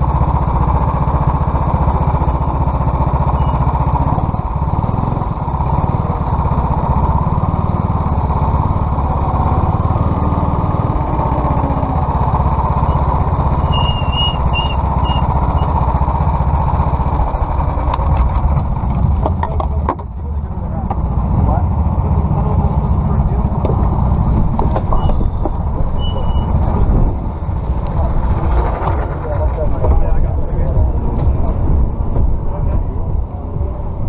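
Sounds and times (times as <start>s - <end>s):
go-kart engine low rumble: 0.0s - 34.0s.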